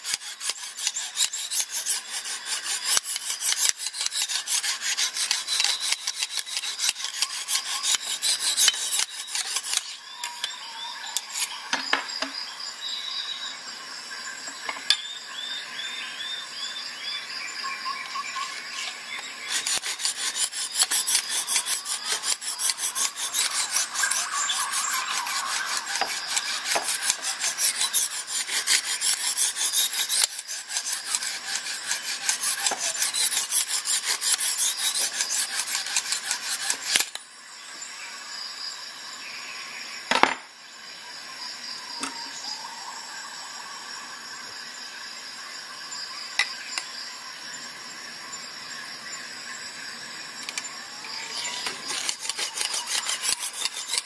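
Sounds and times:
sharpening stone rasping on knife: 0:00.0 - 0:10.6, 0:11.2 - 0:11.6, 0:18.8 - 0:37.2, 0:51.3 - 0:54.0.

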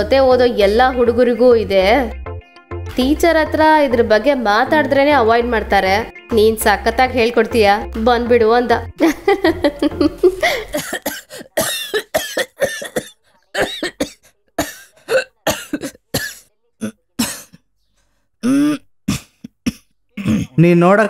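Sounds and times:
man coughing: 0:10.3 - 0:17.6, 0:18.4 - 0:20.6.

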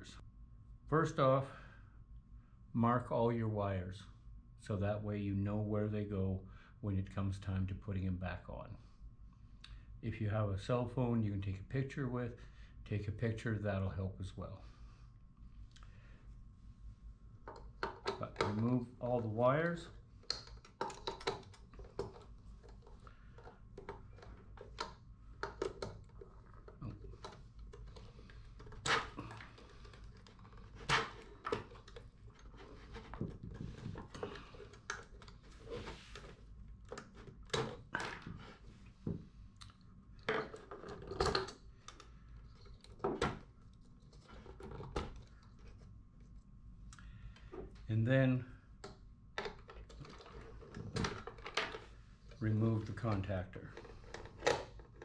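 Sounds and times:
clicks and rattles of wire terminals: 0:20.2 - 0:35.5.

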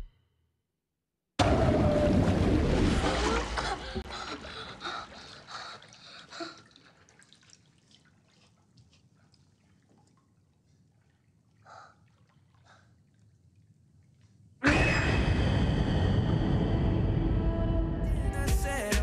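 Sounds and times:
small water splashes: 0:02.0 - 0:14.6
water dripping and trickling: 0:03.0 - 0:14.6.

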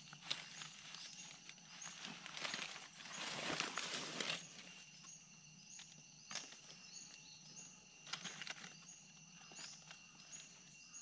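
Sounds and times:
rustling crackles: 0:00.0 - 0:04.7
insect buzz: 0:00.0 - 0:11.0.

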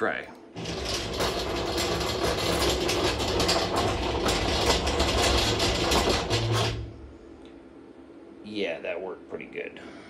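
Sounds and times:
tool changer carousel rotating: 0:00.6 - 0:07.0.

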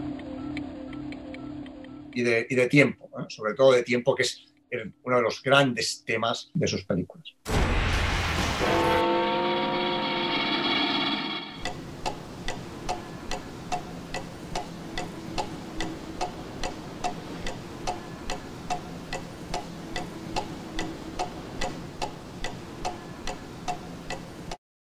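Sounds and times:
clock ticking: 0:11.6 - 0:24.6.

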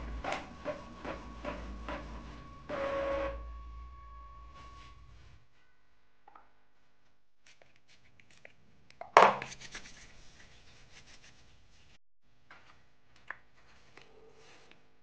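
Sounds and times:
hands rubbing: 0:09.4 - 0:11.9.

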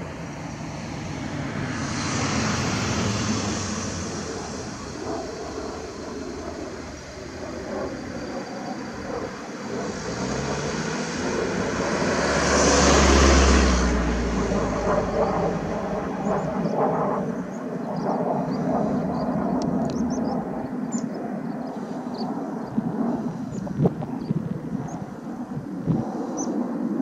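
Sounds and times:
passing vehicle engine rumble: 0:00.0 - 0:26.1.

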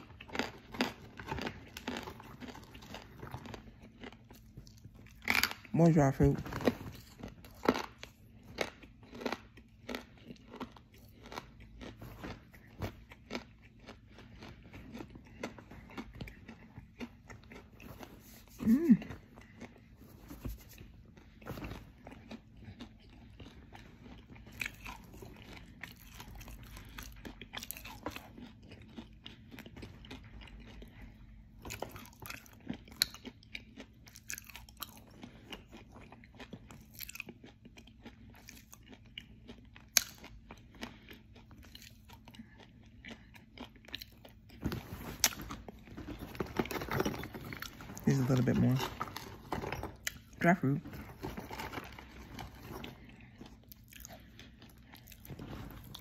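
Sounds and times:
crunchy clay chewing: 0:00.0 - 0:56.0
person humming: 0:18.6 - 0:19.1.

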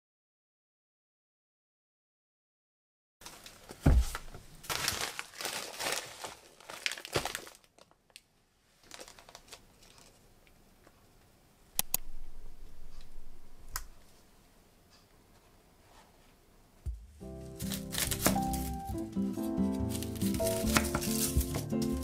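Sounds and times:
plastic packaging crinkling: 0:03.2 - 0:10.3, 0:17.3 - 0:22.0
thump on counter: 0:03.8 - 0:04.2
sharp clicks: 0:11.8 - 0:12.2.

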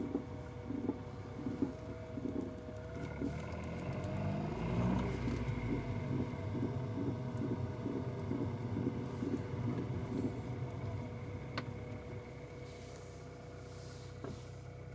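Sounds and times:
car knocking grating noise: 0:00.0 - 0:03.9, 0:04.6 - 0:12.2.

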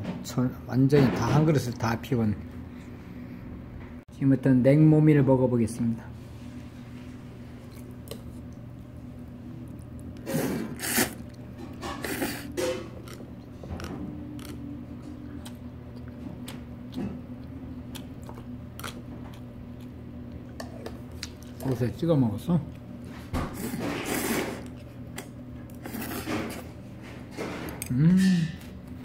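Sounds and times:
noodle slurping: 0:10.2 - 0:11.3.

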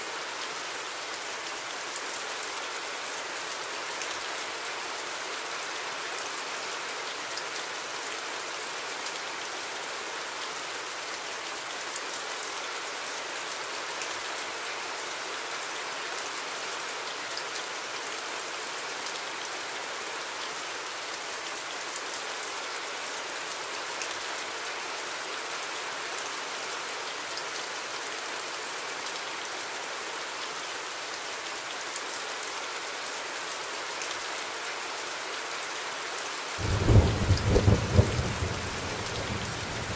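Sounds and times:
steady rain hiss: 0:00.0 - 0:39.9
ticks of raindrops: 0:36.6 - 0:39.9.

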